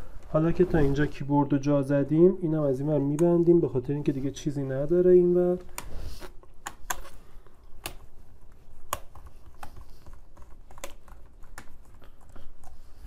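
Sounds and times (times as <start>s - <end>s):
sharp plastic keyboard clicks: 8.8s - 12.7s.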